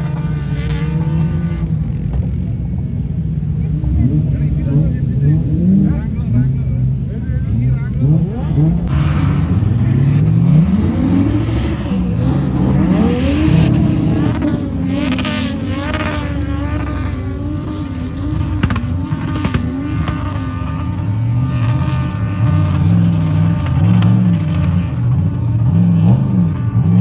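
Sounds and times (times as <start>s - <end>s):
car engines revving: 0.0s - 27.0s.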